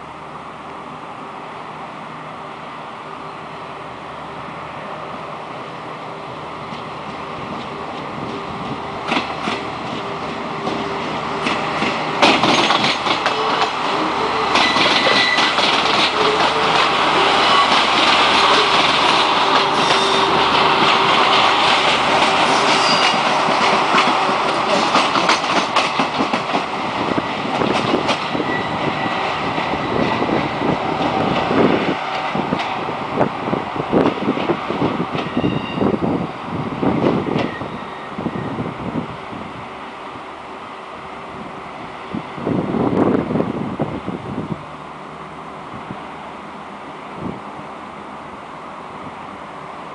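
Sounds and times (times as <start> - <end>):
train wheels clacking: 6.7 - 32.8
high wheel squeal: 12.6 - 21.6, 22.4 - 23.4, 35.3 - 36.0, 37.4 - 38.6.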